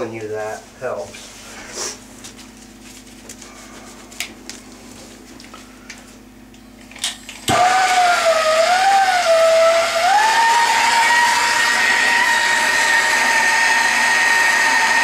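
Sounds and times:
power tool hissing and whining: 7.5s - 15.0s.

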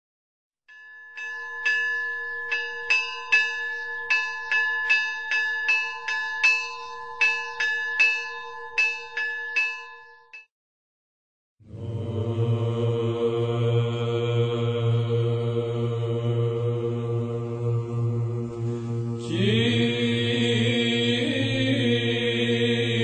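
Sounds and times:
church bells ringing: 0.7s - 10.0s
sustained ringing hum: 0.7s - 10.3s.

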